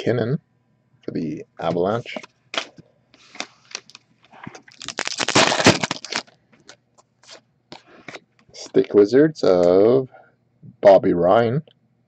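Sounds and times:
foil wrapper crinkling: 0:03.4 - 0:07.4.

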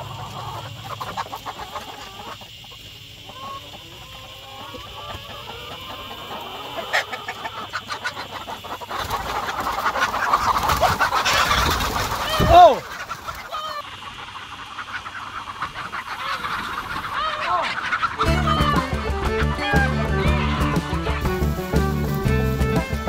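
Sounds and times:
hens clucking: 0:00.0 - 0:23.0
hen squawking: 0:03.2 - 0:23.0
wings flapping: 0:06.9 - 0:23.0.

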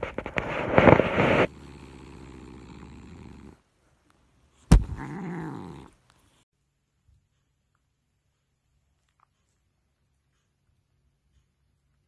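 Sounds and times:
cat purring: 0:00.0 - 0:03.7, 0:04.3 - 0:06.4
cat meowing: 0:04.9 - 0:05.9.

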